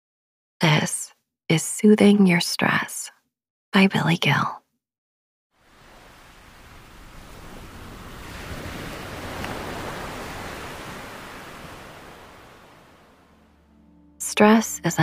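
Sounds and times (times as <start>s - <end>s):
ocean surf washing: 5.6s - 15.0s.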